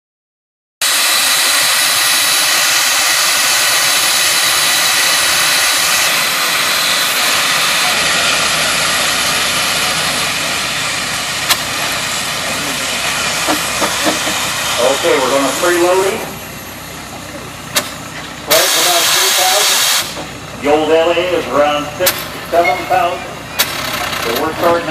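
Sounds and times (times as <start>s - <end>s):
steam engine hissing: 0.8s - 24.9s.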